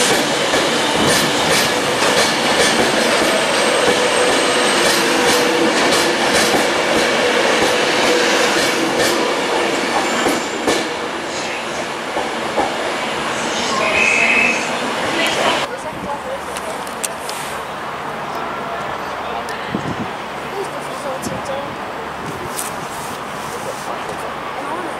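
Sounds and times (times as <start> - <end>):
electric train running: 0.0 - 11.0.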